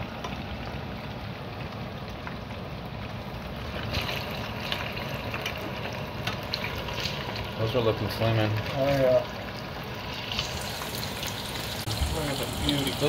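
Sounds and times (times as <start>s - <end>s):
oil sizzling while deep-frying: 0.0s - 13.0s.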